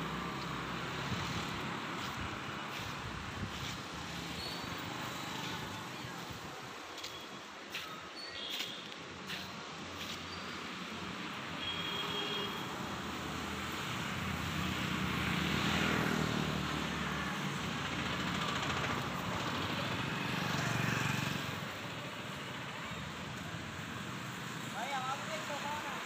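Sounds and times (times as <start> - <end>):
motor vehicles passing: 0.0 - 6.5, 12.8 - 26.0.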